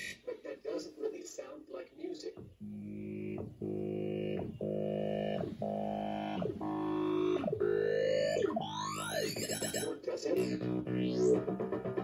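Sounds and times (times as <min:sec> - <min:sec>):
electronic tones with sweeps: 0:02.4 - 0:12.0.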